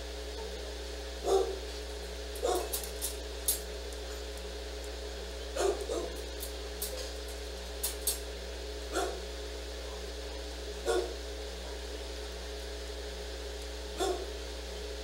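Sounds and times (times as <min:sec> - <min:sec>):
steady low hum: 0:00.0 - 0:15.0
dog barking: 0:01.2 - 0:01.7, 0:02.4 - 0:02.8, 0:05.5 - 0:06.2, 0:08.9 - 0:11.9, 0:13.9 - 0:14.4.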